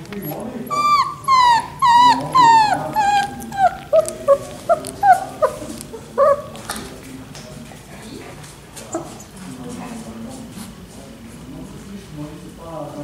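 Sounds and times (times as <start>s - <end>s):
puppy whimpering: 0.1s - 6.9s.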